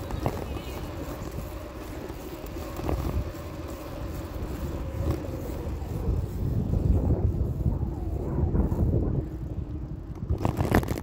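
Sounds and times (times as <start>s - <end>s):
tyre rumble on pavement: 0.0s - 7.4s
wind buffeting microphone: 0.0s - 11.0s.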